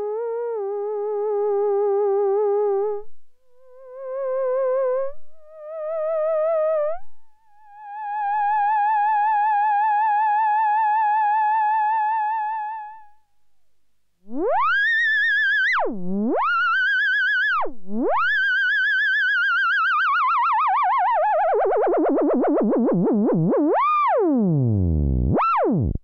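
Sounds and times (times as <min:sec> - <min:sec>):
theremin playing sustained notes: 0:14.3 - 0:26.0.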